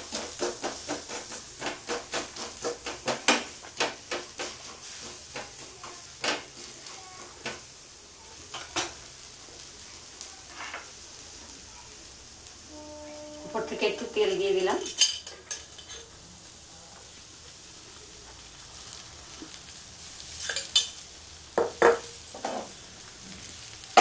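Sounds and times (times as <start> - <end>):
spatula tapping in frying pan: 0.0 - 6.8, 20.6 - 22.4
faint sizzle of frying batter: 0.0 - 24.0.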